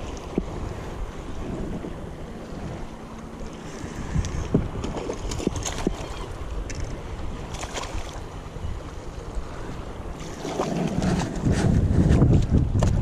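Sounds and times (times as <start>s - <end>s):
water lapping against hull: 0.0s - 13.0s
wind buffeting microphone: 0.0s - 13.0s
water slaps and splashes: 4.2s - 6.1s, 7.5s - 8.2s, 10.2s - 13.0s.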